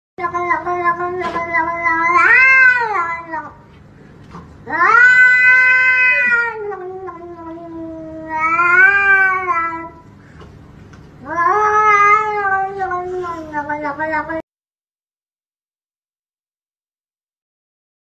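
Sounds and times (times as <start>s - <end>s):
cat yowling: 0.2s - 3.6s, 4.7s - 10.0s, 11.2s - 14.4s.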